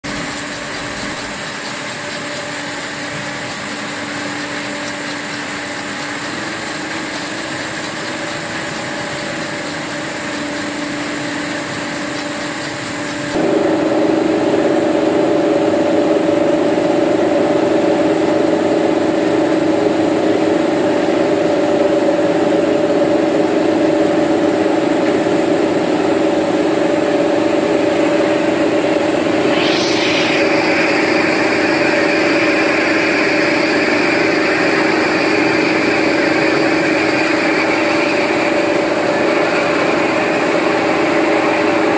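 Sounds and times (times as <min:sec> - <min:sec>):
washing machine motor hum: 0:00.0 - 0:41.9
water spraying from nozzles: 0:00.0 - 0:41.9
high whine changing pitch: 0:13.0 - 0:41.9.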